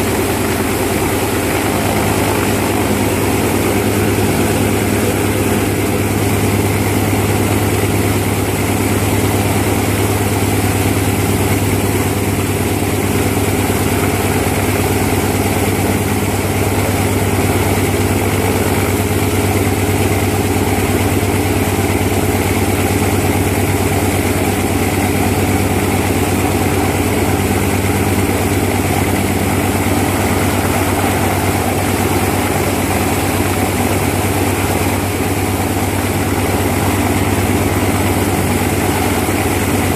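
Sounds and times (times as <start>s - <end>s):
radial aircraft engine idling: 0.0s - 39.9s.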